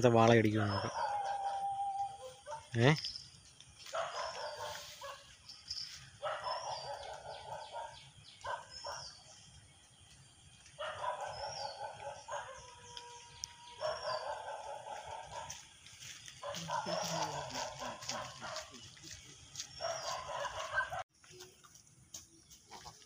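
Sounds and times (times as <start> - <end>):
bird chirping: 0.0 - 21.8
animal calls: 0.6 - 2.9, 3.9 - 9.4, 10.6 - 21.0.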